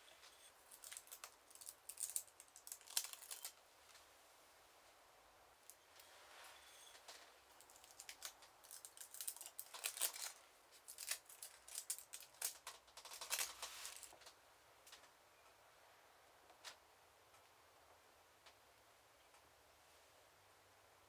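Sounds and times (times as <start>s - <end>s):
foil and paper crinkling: 0.7s - 3.6s, 7.5s - 14.1s.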